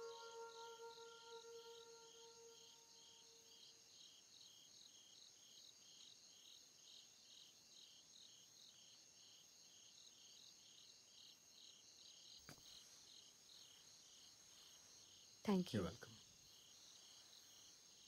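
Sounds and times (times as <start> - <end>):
ringing tone: 0.0 - 2.6
crickets chirping: 0.0 - 18.0.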